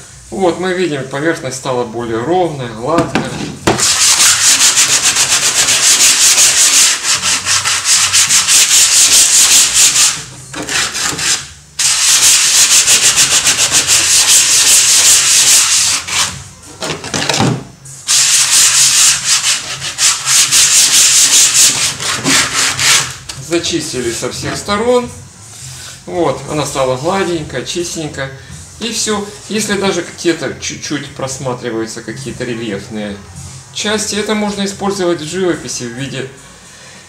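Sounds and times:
sandpaper rasping on wood: 0:03.8 - 0:16.4, 0:18.1 - 0:23.2.

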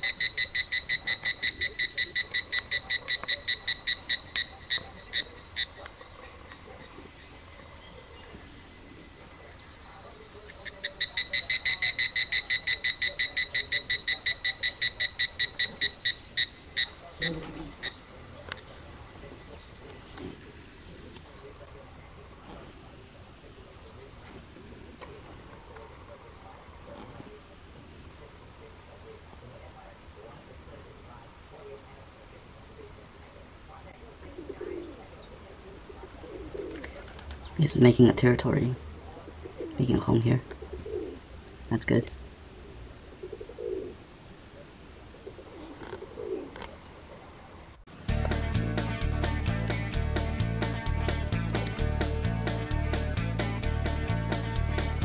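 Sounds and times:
short sharp chirping calls: 0:00.0 - 0:07.0
doves cooing: 0:00.0 - 0:47.8.

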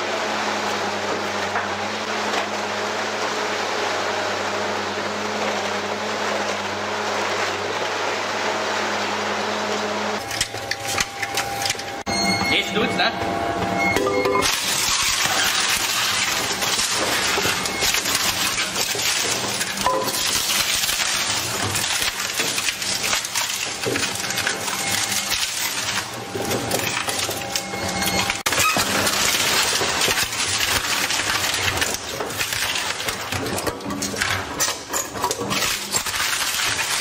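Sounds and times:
shredder machine hum: 0:00.0 - 0:37.0
wood cracking and splintering: 0:14.4 - 0:37.0.

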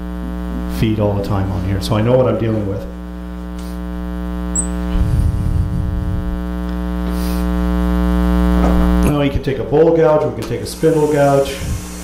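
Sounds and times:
electrical mains hum: 0:00.0 - 0:12.0
low rumble: 0:04.7 - 0:08.1.

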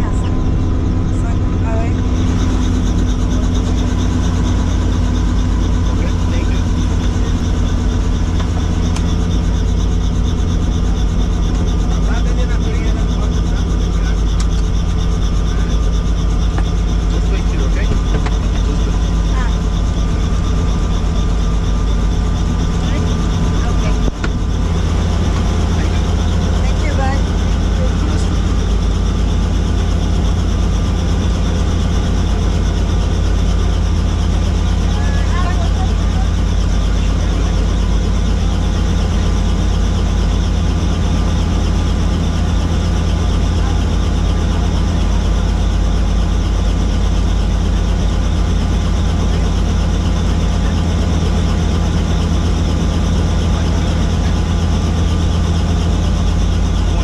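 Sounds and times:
helicopter turbine and rotor drone: 0:00.0 - 0:57.0.

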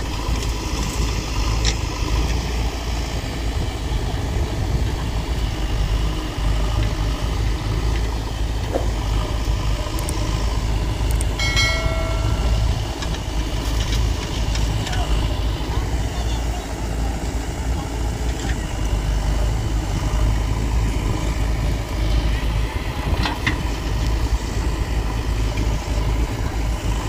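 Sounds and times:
diesel engines running: 0:00.0 - 0:27.0
short high-pitched tone: 0:11.4 - 0:12.9.

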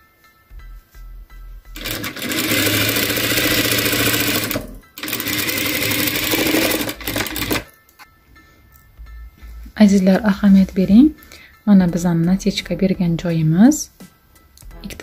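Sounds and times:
sewing machine stitching: 0:01.8 - 0:07.7.

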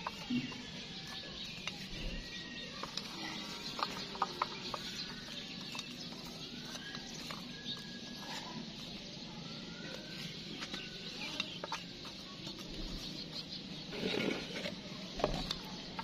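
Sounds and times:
charcoal clinking and scraping: 0:10.6 - 0:16.0.

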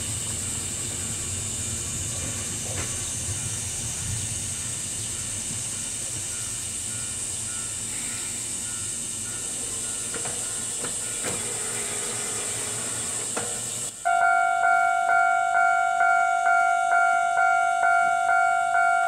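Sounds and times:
steady high hiss: 0:00.0 - 0:19.0
level-crossing alarm dinging: 0:14.0 - 0:19.0.

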